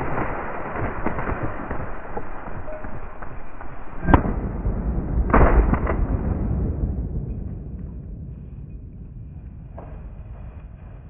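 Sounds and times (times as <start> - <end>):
shotgun shots: 0.0 - 6.9.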